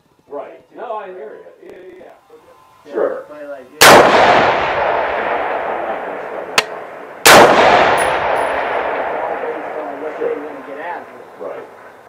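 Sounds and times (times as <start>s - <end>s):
rifle shots echoing: 3.8s - 12.0s
sharp click: 6.6s - 6.8s.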